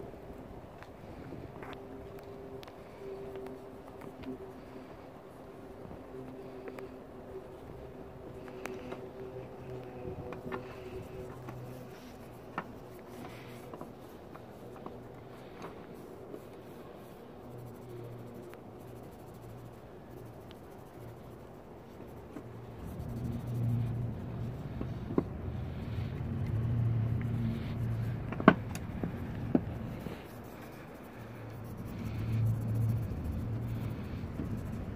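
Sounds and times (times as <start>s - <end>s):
low hum: 0.0s - 34.9s
cloth rubbing on metal: 25.8s - 34.9s.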